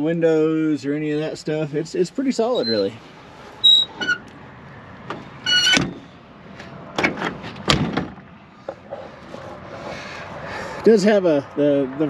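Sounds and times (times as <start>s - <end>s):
metal door squeaking: 2.4s - 3.0s, 3.6s - 4.3s, 5.1s - 6.1s
sharp pitched squeal: 2.4s - 3.0s, 3.6s - 4.2s
knocks and thuds: 7.0s - 8.2s.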